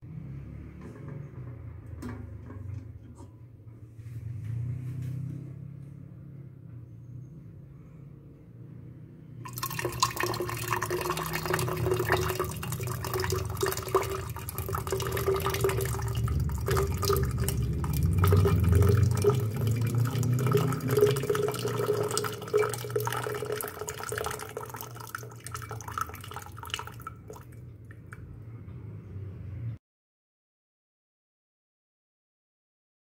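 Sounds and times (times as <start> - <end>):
water pouring into a pitcher: 9.5 - 28.2.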